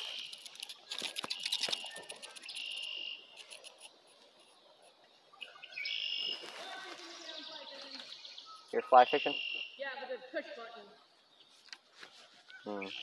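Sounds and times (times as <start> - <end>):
quick clicks: 0.0 - 3.9
insect buzzing call: 1.2 - 3.8.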